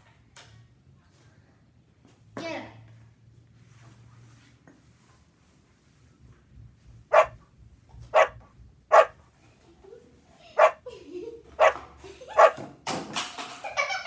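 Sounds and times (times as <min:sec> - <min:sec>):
dog barking: 0:07.1 - 0:07.4, 0:08.1 - 0:09.2, 0:10.6 - 0:10.8, 0:11.6 - 0:11.8, 0:12.4 - 0:12.6.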